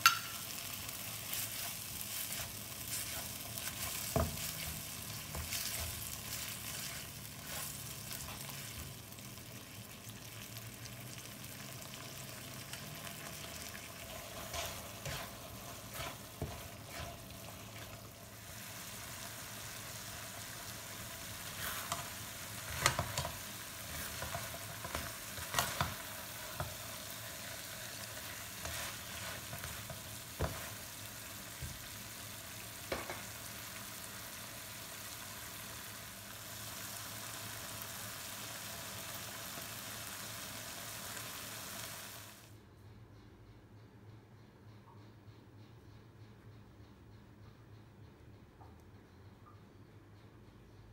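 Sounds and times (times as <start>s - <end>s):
sauce sizzling in a pan: 0.0s - 42.5s
spatula scraping a pan: 1.1s - 8.9s, 13.6s - 18.1s, 21.3s - 26.0s, 28.0s - 30.9s.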